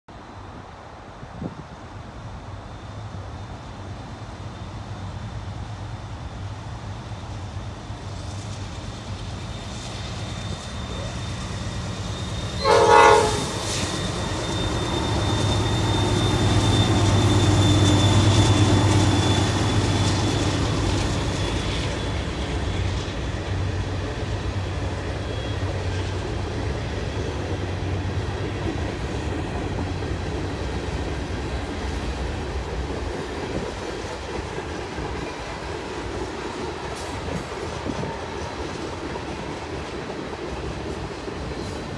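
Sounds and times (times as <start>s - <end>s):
locomotive rumble: 2.3s - 41.9s
train horn blast: 12.6s - 13.9s.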